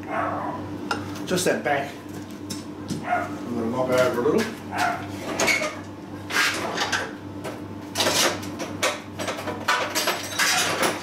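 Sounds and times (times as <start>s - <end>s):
metal parts scraping and knocking: 9.7s - 11.0s.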